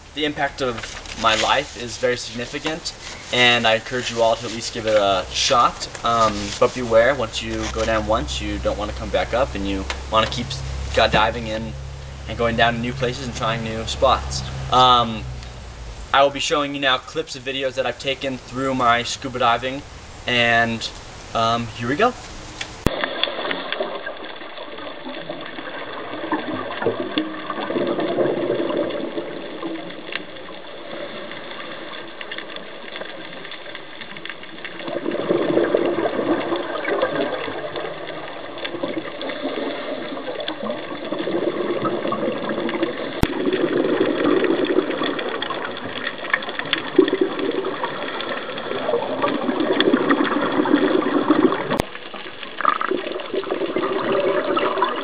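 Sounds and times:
steady background hum: 0.0 - 22.9
diver exhaling bubbles underwater: 34.7 - 51.9, 52.5 - 55.0.

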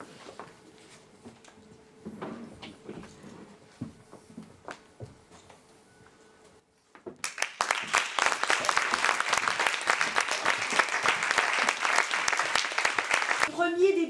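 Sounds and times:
audience applauding: 7.2 - 13.5.

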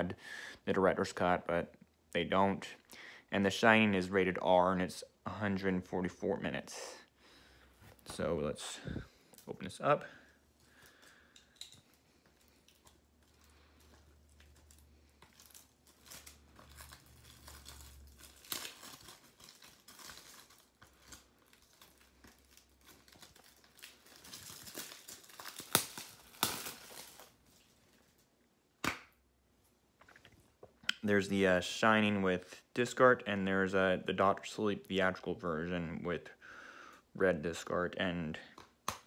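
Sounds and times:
plastic wrap crinkling and tearing: 10.6 - 28.4.

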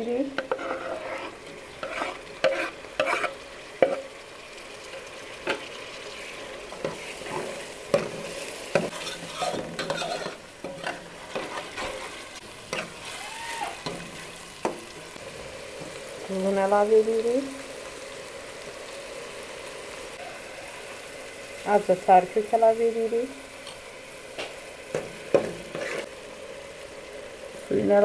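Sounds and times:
vegetables sizzling in oil: 0.0 - 28.0
knife scraping wooden board: 0.4 - 4.0.

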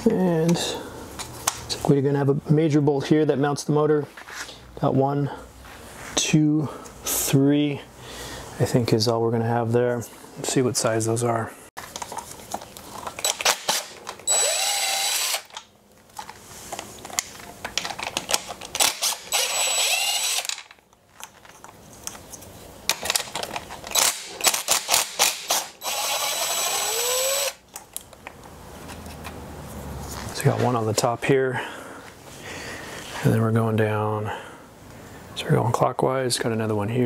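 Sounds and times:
power driver whining: 13.2 - 15.7, 18.8 - 20.7, 23.9 - 27.6.

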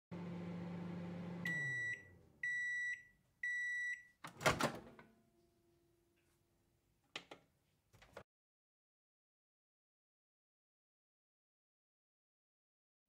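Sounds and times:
microwave oven humming: 0.1 - 2.8
microwave beeps: 0.4 - 4.2.

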